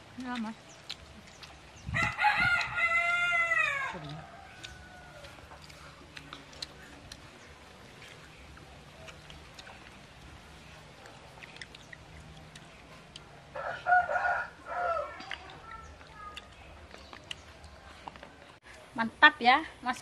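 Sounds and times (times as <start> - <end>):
rooster crowing: 2.0 - 5.5, 13.5 - 15.2.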